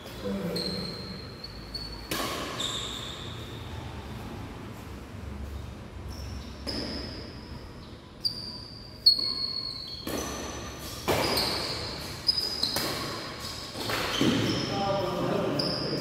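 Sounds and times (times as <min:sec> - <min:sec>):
shoes squeaking on court: 0:00.0 - 0:04.0, 0:05.4 - 0:16.0
racket hitting shuttlecock: 0:01.8 - 0:03.2, 0:06.6 - 0:07.4, 0:09.0 - 0:14.6.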